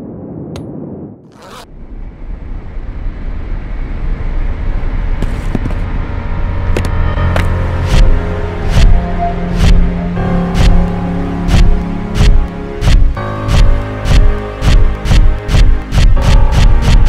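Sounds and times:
low rumble riser: 0.0s - 17.0s.

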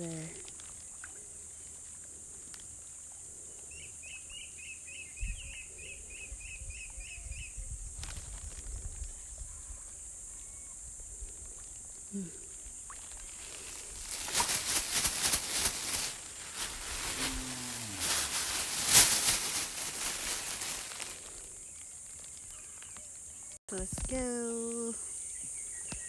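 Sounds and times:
wind rumble on microphone: 5.2s - 9.9s
steady high hiss: 10.0s - 22.1s
rustling: 12.9s - 23.3s.

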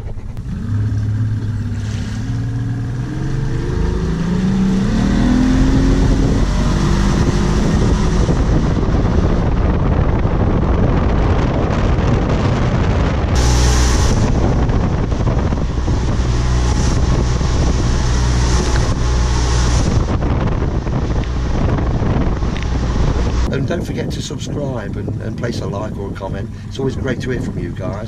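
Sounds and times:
outboard motor accelerating: 0.0s - 28.0s
wind and water rushing: 0.0s - 28.0s
wind hiss on microphone: 5.6s - 28.0s.

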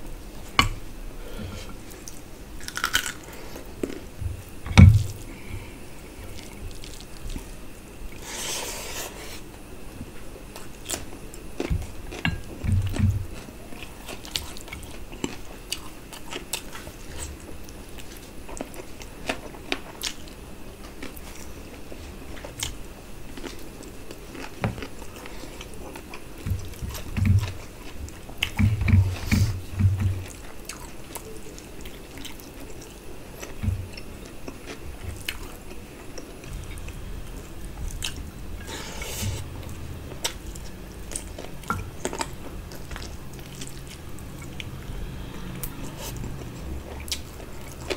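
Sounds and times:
chewing and lip-smacking: 22.4s - 36.9s, 39.7s - 44.8s.

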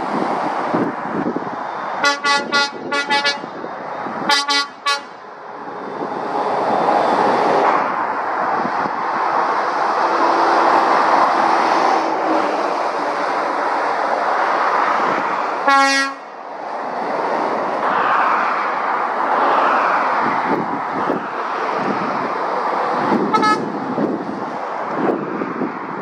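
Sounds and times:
heavy road traffic: 0.0s - 26.0s
higher-pitched horn toot: 2.0s - 3.6s, 4.3s - 5.2s, 15.7s - 16.3s, 23.3s - 23.7s
loud horn toot: 2.0s - 3.6s, 4.2s - 5.2s, 15.6s - 16.3s, 23.3s - 23.8s.

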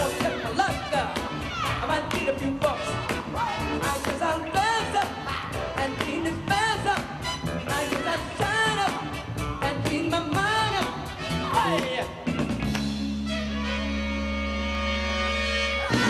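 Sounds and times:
upbeat dance music with singing: 0.0s - 12.2s.

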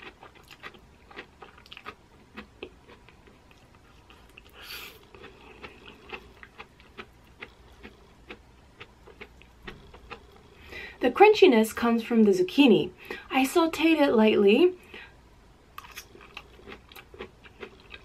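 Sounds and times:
chewing crunchy food: 0.0s - 10.7s, 15.8s - 18.0s.

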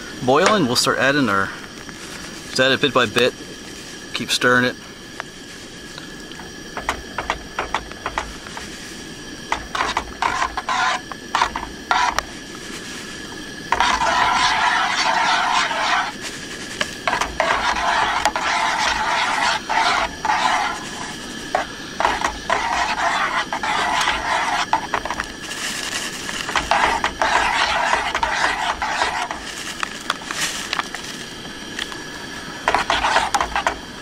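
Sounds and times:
camp stove burner hissing: 0.0s - 34.0s
metal spoon scraping pot: 9.5s - 12.2s, 13.7s - 16.2s, 16.8s - 25.4s, 26.4s - 29.5s, 32.7s - 33.8s.

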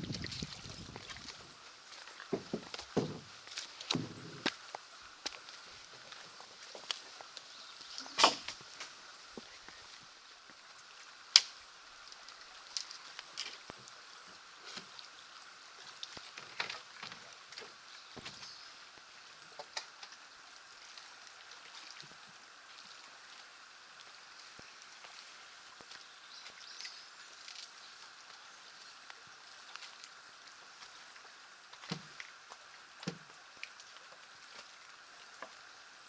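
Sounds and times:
faint hiss: 0.0s - 36.0s
footsteps on rocky trail: 2.2s - 7.4s.

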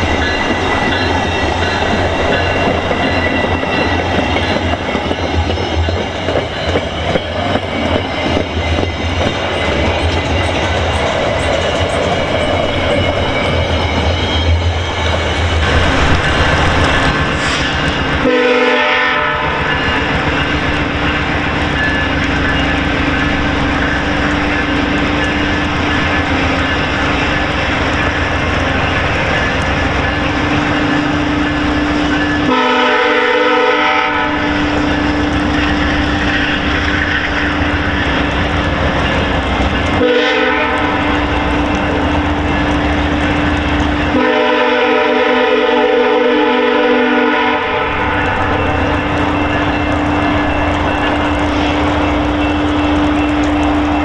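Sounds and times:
train wheels clattering: 0.0s - 45.7s
distant train horn: 17.3s - 20.2s, 30.7s - 35.5s, 39.9s - 42.4s, 43.5s - 54.0s.

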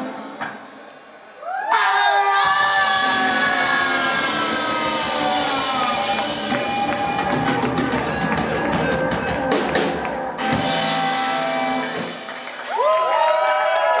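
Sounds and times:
live rock band playing: 2.6s - 12.9s.

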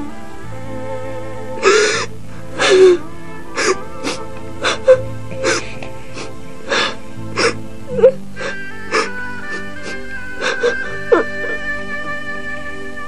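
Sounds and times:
background music: 0.0s - 13.0s
woman sobbing and wailing: 1.6s - 11.9s.

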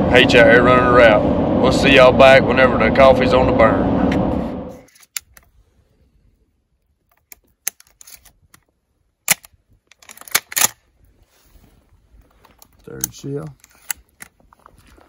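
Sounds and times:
shotgun loading clicks: 4.9s - 5.5s, 7.1s - 10.8s.

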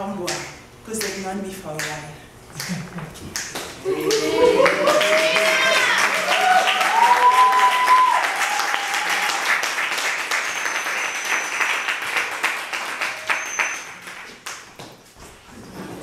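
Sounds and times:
audience applauding: 4.1s - 14.6s.

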